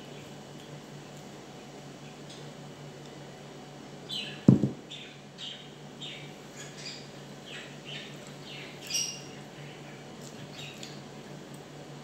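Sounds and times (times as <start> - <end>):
bowl thumping on table: 4.5 - 4.8.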